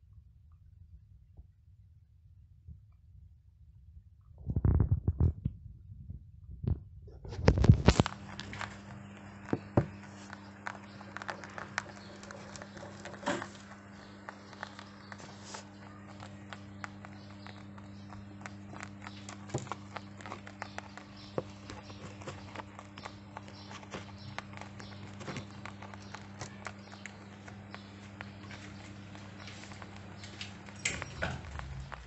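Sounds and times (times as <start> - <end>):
steady low hum: 0.0 - 32.0
rabbits crunching dry kibble: 7.1 - 32.0.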